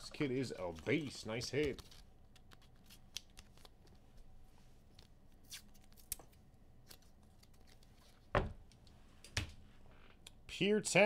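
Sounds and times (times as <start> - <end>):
cards and wrappers rustling: 0.2 - 4.2.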